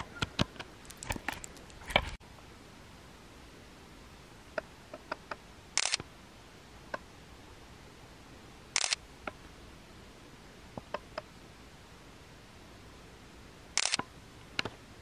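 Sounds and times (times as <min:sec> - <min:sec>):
camera shutter clicks: 0:05.8 - 0:06.1, 0:08.8 - 0:09.0, 0:13.8 - 0:14.1.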